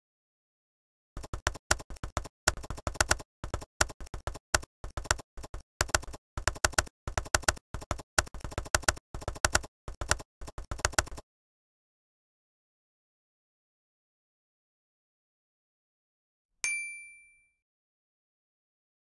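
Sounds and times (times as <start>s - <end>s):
keyboard typing clicks: 1.2s - 11.2s.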